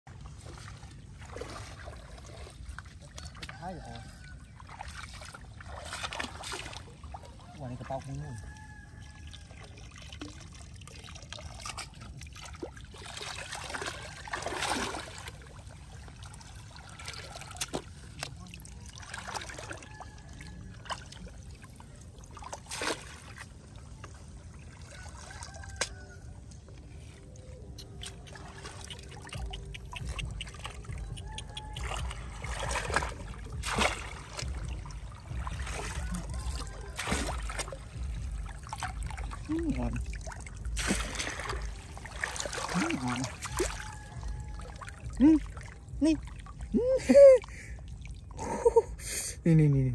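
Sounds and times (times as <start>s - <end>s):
water splashing: 0.1s - 49.0s
water dripping: 25.2s - 48.7s.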